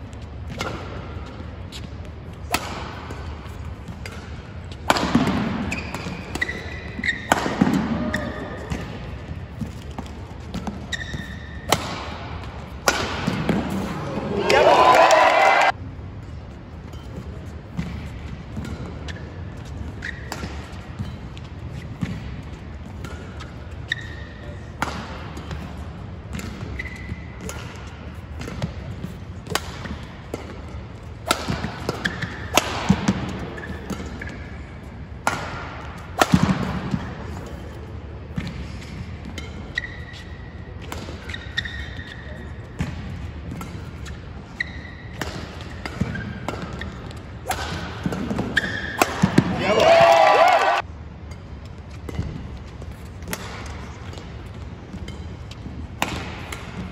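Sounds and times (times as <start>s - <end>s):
shoes squeaking on court: 0.0s - 12.8s, 16.7s - 24.8s, 25.5s - 35.2s, 36.9s - 50.8s
rackets hitting shuttlecock: 0.3s - 15.8s, 16.9s - 56.9s.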